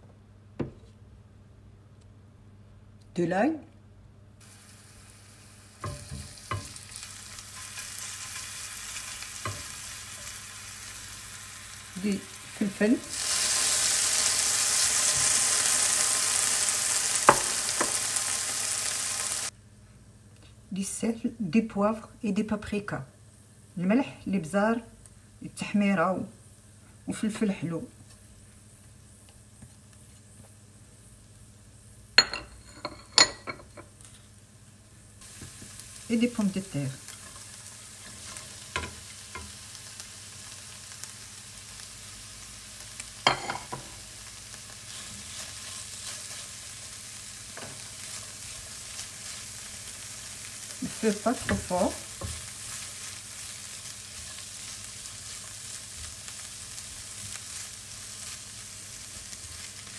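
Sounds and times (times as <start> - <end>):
garlic sizzling in oil: 4.4 - 19.6, 20.8 - 59.9
spatula knocking on pan: 5.8 - 6.8, 17.3 - 18.0
plate and utensil clinking: 32.2 - 33.9, 43.3 - 43.8.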